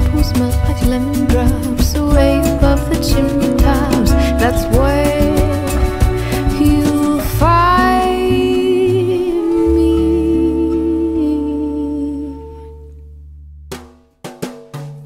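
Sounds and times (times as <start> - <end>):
song with singing and drums: 0.0 - 11.3.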